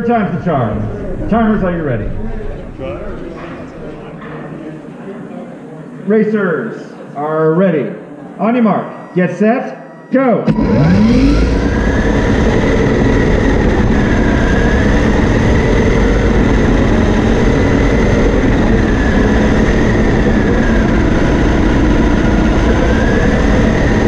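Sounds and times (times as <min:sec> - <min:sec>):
electric motor whine: 0:10.5 - 0:24.0.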